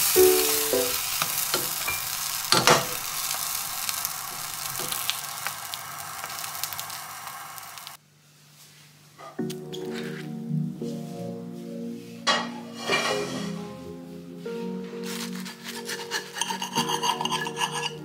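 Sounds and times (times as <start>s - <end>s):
quesadilla sizzling in a pan: 0.0s - 8.0s, 12.3s - 13.5s, 15.0s - 18.0s
spatula scraping a pan: 12.3s - 13.8s, 15.0s - 18.0s.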